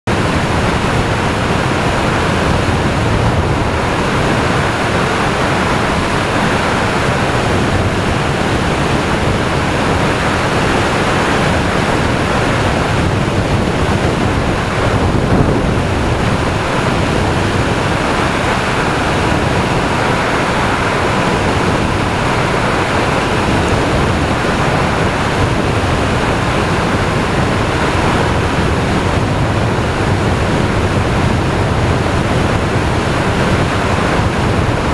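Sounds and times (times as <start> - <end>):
road and machine noise: 0.1 - 34.9
wind buffeting microphone: 0.1 - 34.9.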